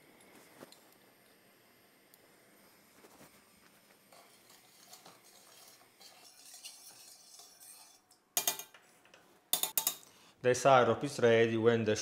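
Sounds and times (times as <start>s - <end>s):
metal utensil stirring in pot: 4.1s - 10.1s.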